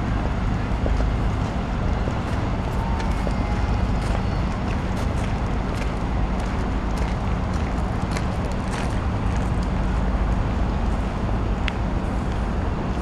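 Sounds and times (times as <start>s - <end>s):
low rumble of city noise: 0.0s - 13.0s.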